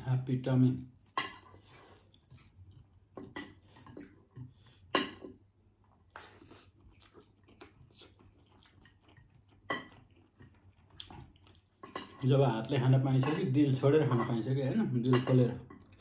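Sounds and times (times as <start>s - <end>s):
chewing and mouth smacks: 1.4s - 5.0s, 5.8s - 12.2s.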